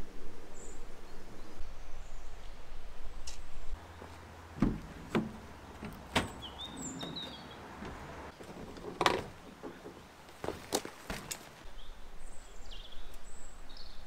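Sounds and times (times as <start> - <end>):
sharp knocks and clicks: 4.6 - 10.0
bird chirps: 5.6 - 7.8.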